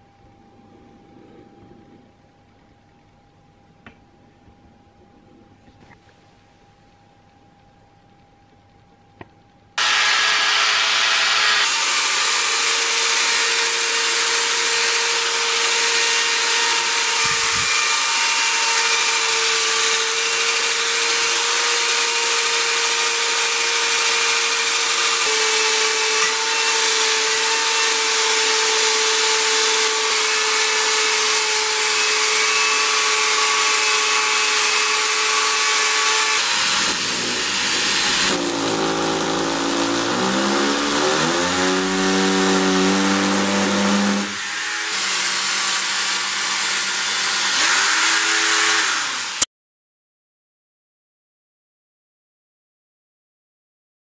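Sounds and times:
hammer drill whining under load: 9.8s - 49.5s.

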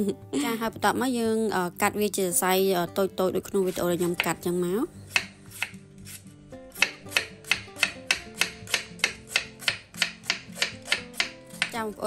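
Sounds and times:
soft background music: 0.0s - 12.0s
knife slicing on cutting board: 5.1s - 11.7s.

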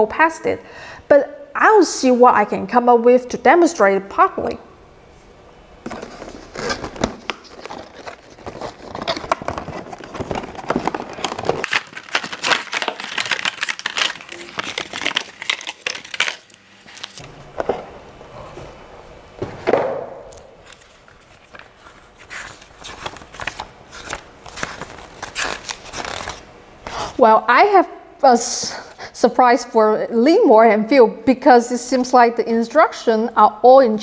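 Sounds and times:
packaging crinkling and crackling: 5.9s - 17.3s, 20.3s - 26.5s.

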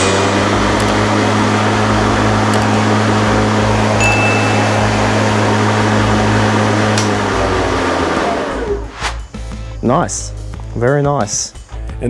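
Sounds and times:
lawn mower running: 0.0s - 8.9s
short thin high tone: 4.0s - 5.4s.

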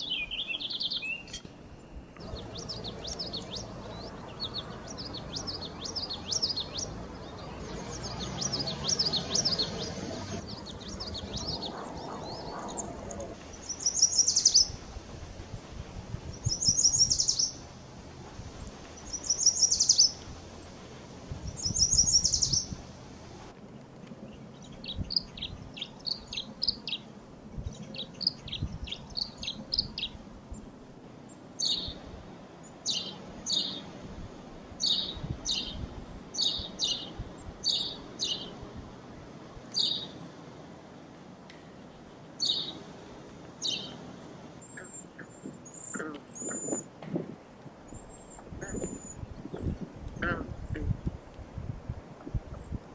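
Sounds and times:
songbird nasal calls: 2.2s - 15.0s, 16.3s - 17.7s, 18.5s - 22.9s, 44.6s - 47.3s, 47.9s - 51.1s.

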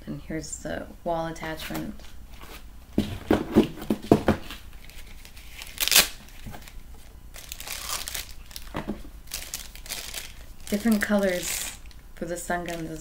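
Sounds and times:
plastic packaging crinkling: 4.4s - 13.0s
loud crinkle or rip: 4.8s - 11.9s.

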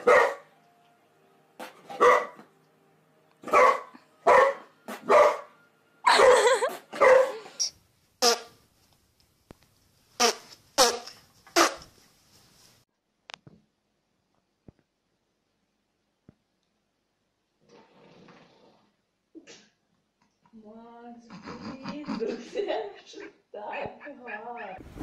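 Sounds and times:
dog bark-growl: 0.0s - 0.4s, 2.0s - 2.4s, 3.4s - 5.5s, 6.1s - 7.4s
dog barking: 0.0s - 0.5s, 1.9s - 2.4s, 3.4s - 5.5s, 6.1s - 7.5s.

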